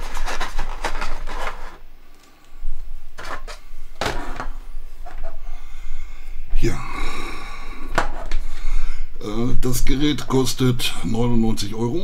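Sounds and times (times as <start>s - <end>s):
hands rubbing plastic packaging: 0.0s - 2.4s.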